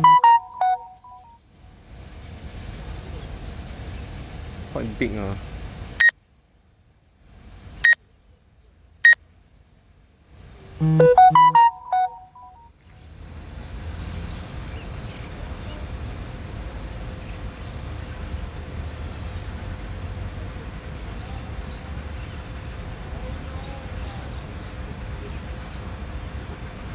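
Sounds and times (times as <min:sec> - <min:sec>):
high electronic beeps: 0:00.0 - 0:01.2, 0:10.8 - 0:12.6
electronic jingle tones: 0:00.0 - 0:01.3, 0:10.8 - 0:12.7.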